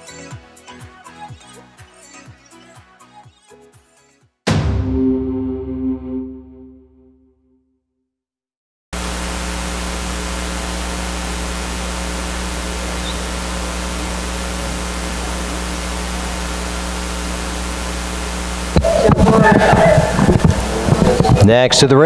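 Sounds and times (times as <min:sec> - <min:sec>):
low mains hum: 0:09.0 - 0:21.5
steady hiss: 0:09.4 - 0:19.2.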